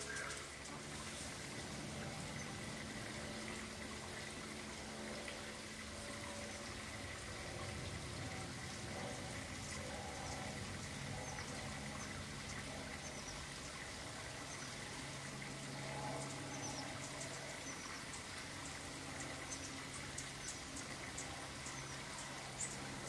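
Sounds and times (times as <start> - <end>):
small birds chirping: 0.0 - 1.2
background hum and hiss: 0.0 - 23.0.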